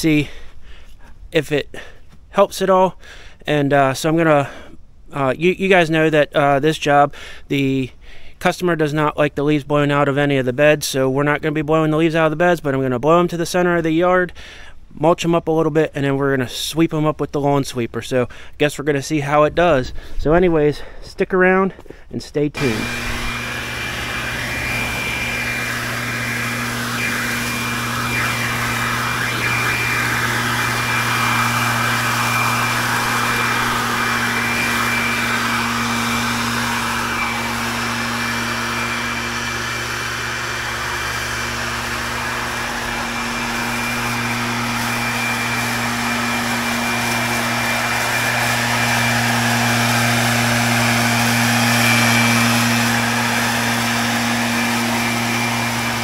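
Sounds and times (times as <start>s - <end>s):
leaf blower running: 22.6s - 56.0s.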